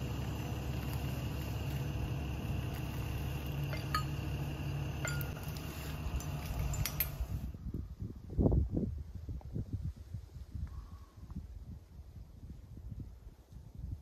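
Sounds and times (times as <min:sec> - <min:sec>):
diesel engine idling: 0:00.0 - 0:07.5
light metallic clinks: 0:02.8 - 0:07.4.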